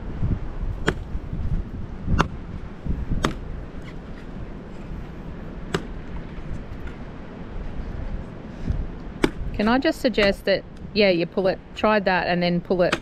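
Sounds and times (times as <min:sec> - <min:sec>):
blade chopping coconut husk: 0:00.8 - 0:01.1, 0:02.1 - 0:02.4, 0:03.2 - 0:03.5, 0:05.7 - 0:06.0, 0:09.2 - 0:10.4.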